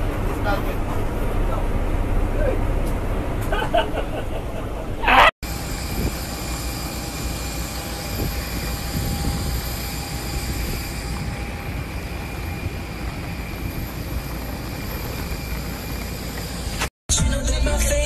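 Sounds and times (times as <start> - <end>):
aircraft roar: 0.0 - 16.9
faint high whine: 5.5 - 16.9.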